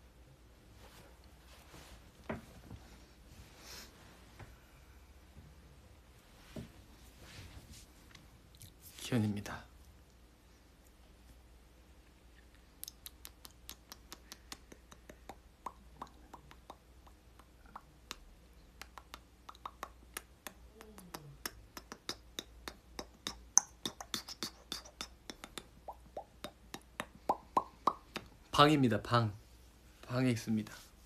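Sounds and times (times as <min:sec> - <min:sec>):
man making mouth pops and clicks: 0:12.4 - 0:28.5.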